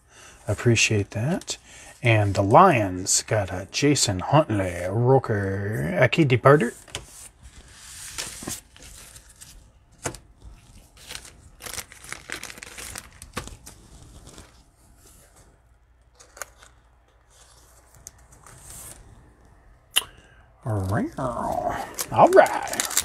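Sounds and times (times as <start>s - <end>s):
cellophane wrapper tearing and crinkling: 10.4s - 14.7s, 16.0s - 18.4s, 20.8s - 23.0s.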